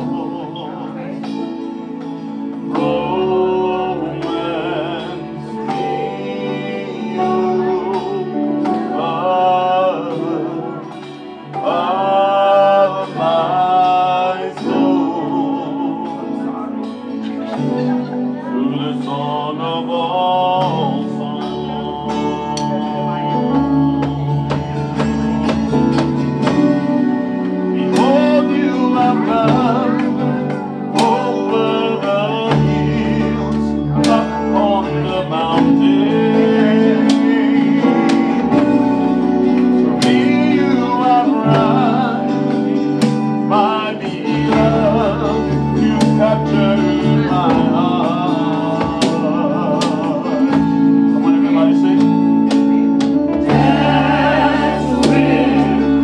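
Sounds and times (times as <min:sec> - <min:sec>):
electronic keyboard: 0:00.0 - 0:56.0
guitar: 0:00.0 - 0:56.0
people singing into microphones: 0:00.0 - 0:56.0
drum kit: 0:20.6 - 0:56.0.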